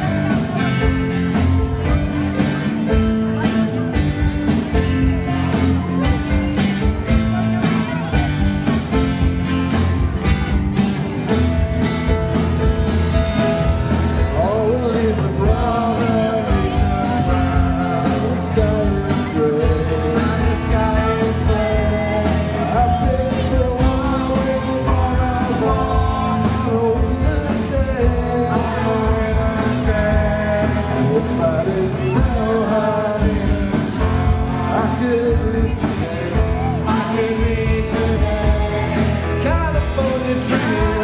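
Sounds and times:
live rock band playing: 0:00.0 - 0:41.0
person singing: 0:13.4 - 0:41.0.

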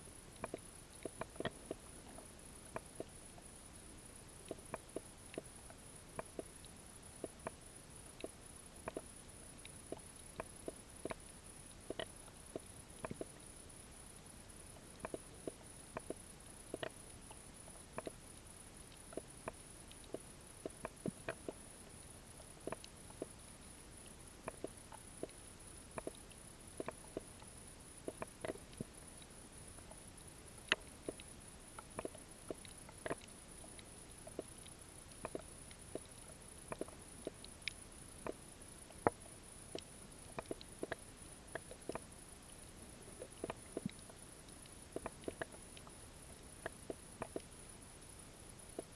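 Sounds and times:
faint steady hiss: 0:00.0 - 0:48.9
underwater clicks and snaps: 0:00.4 - 0:03.1, 0:11.9 - 0:13.4, 0:15.0 - 0:17.0, 0:18.0 - 0:18.2, 0:22.6 - 0:23.3, 0:24.4 - 0:25.4, 0:26.0 - 0:27.4, 0:30.6 - 0:34.5, 0:35.1 - 0:36.1, 0:36.7 - 0:42.1, 0:43.2 - 0:44.2, 0:44.9 - 0:45.9, 0:46.6 - 0:47.5.

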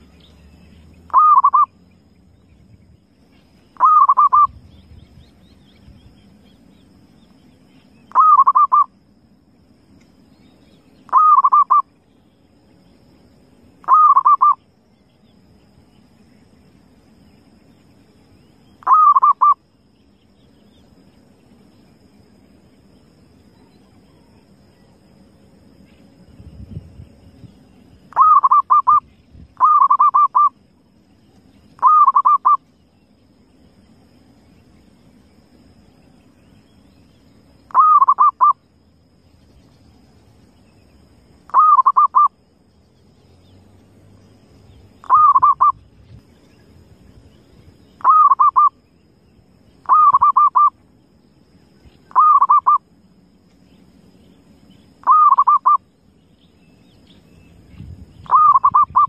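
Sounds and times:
dove cooing: 0:01.1 - 0:01.7, 0:03.8 - 0:04.5, 0:08.1 - 0:08.9, 0:11.1 - 0:11.8, 0:13.8 - 0:14.6, 0:18.8 - 0:19.6, 0:28.1 - 0:29.0, 0:29.6 - 0:30.5, 0:31.8 - 0:32.6, 0:37.7 - 0:38.6, 0:41.5 - 0:42.3, 0:45.0 - 0:45.8, 0:48.0 - 0:48.7, 0:49.8 - 0:50.7, 0:52.1 - 0:52.8, 0:55.0 - 0:55.8, 0:58.2 - 0:59.0.

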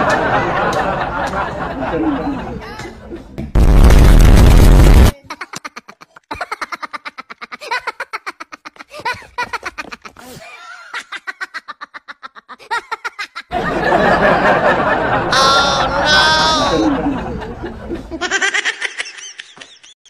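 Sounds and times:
loud burst of noise: 0:03.6 - 0:05.2
rapid laughter: 0:05.2 - 0:20.0.

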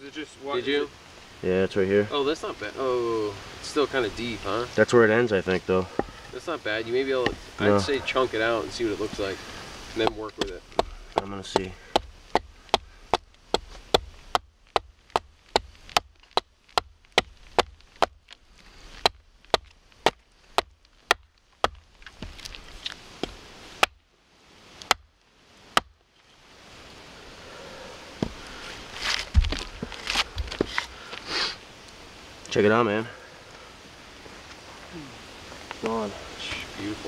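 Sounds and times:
rustling: 0:01.1 - 0:37.0
axe chopping wood: 0:10.0 - 0:18.2, 0:19.0 - 0:22.5, 0:24.8 - 0:25.1, 0:25.7 - 0:26.0
low thumps: 0:29.2 - 0:30.8.

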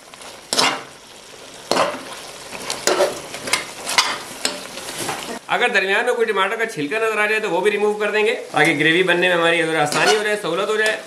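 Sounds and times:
meat sizzling in oil: 0:00.0 - 0:11.0
metal spatula scraping a pot: 0:00.5 - 0:00.9, 0:09.9 - 0:10.4.

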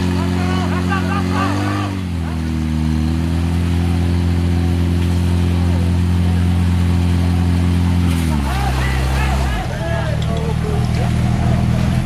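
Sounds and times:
faint shouting: 0:08.4 - 0:10.6.

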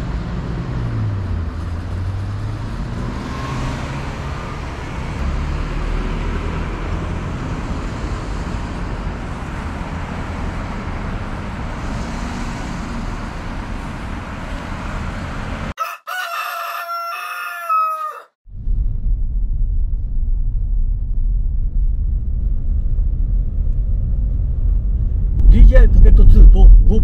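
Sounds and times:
road traffic passing: 0:00.0 - 0:18.3
rooster crowing: 0:15.8 - 0:18.4.

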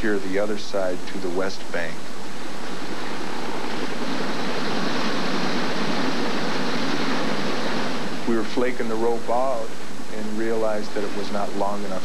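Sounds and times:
helicopter hovering: 0:00.0 - 0:12.0.

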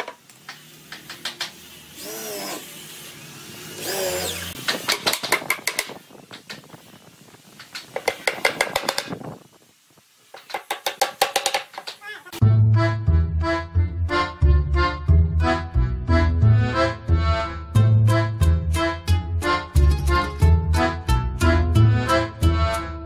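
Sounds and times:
hammer knocking nails into wood: 0:08.0 - 0:09.2, 0:10.4 - 0:12.0.

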